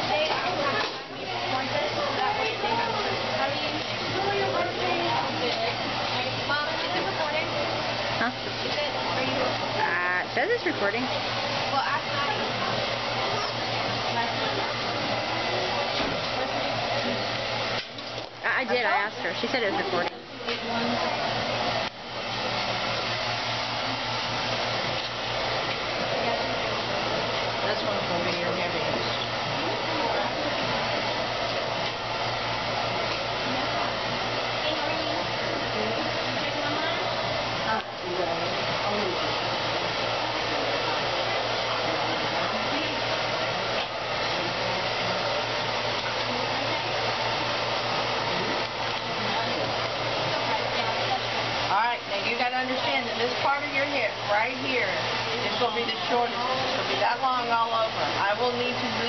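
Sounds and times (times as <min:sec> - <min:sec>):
hair dryer running: 0:00.0 - 0:59.0.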